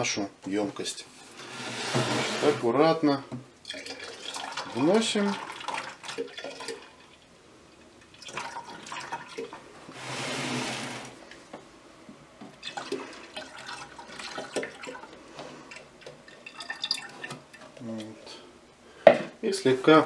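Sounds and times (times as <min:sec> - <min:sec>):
drips: 0:03.6 - 0:09.6, 0:12.5 - 0:18.4
liquid sloshing in plastic bottle: 0:12.6 - 0:17.8.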